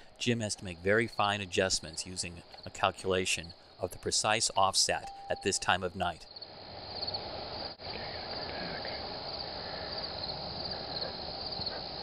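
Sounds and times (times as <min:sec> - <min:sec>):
night insects chirping: 0:00.0 - 0:12.0.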